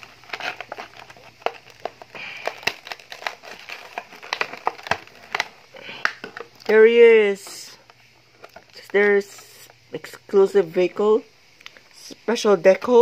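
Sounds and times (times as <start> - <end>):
plastic packaging crinkling: 0.0 - 10.2.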